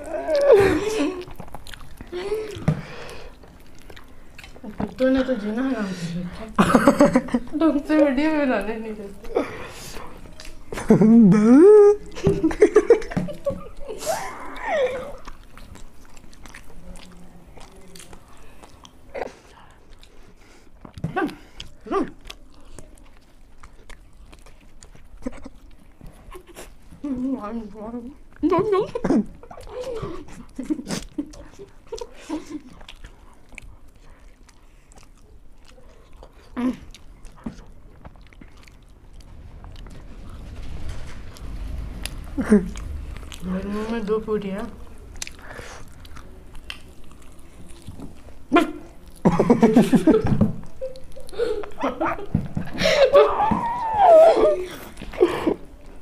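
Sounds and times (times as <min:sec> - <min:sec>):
people chewing and eating: 0:00.0 - 0:56.0
laughter: 0:06.6 - 0:07.6, 0:10.8 - 0:15.2, 0:28.7 - 0:32.8, 0:49.2 - 0:55.6.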